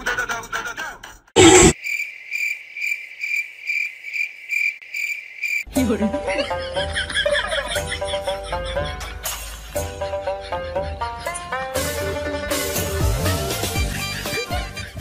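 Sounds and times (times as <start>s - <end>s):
crickets chirping: 1.7s - 5.7s
music: 5.7s - 15.0s.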